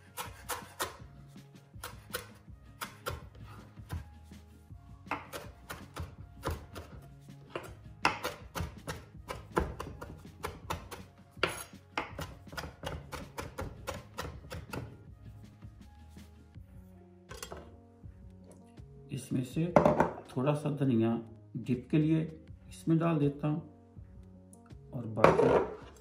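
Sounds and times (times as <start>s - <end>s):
knife chopping on cutting board: 0.0s - 1.1s, 1.8s - 4.2s, 5.0s - 15.0s.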